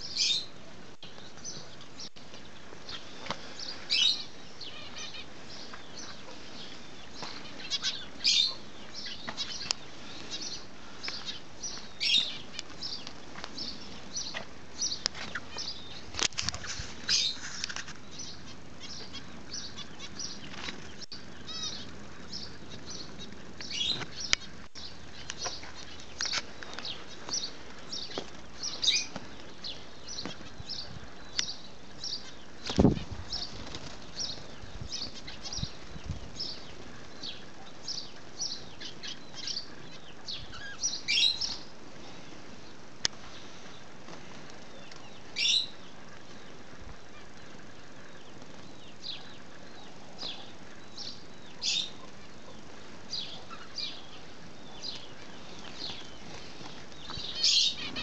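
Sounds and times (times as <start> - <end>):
birds chirping: 0.0 - 58.0
wings fluttering: 2.3 - 31.2, 32.0 - 37.6, 43.1 - 50.8.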